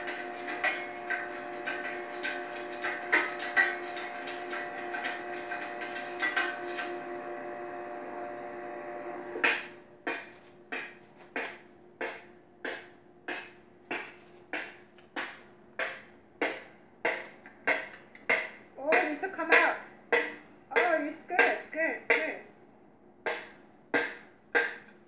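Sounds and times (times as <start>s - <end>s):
steady hum: 0.0s - 25.0s.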